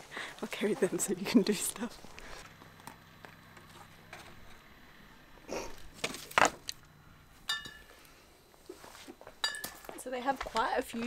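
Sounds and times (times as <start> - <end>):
wooden sticks knocking and rustling: 5.9 - 6.8.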